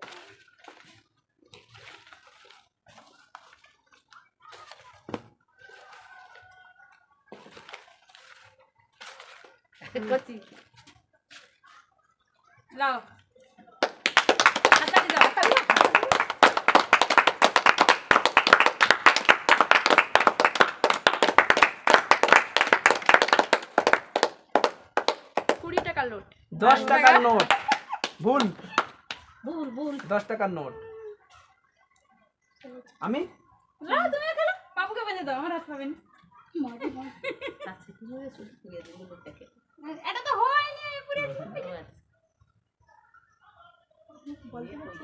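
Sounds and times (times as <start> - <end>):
banknotes rustling: 7.4 - 10.6
people clapping fast: 13.8 - 26.0, 26.6 - 29.3.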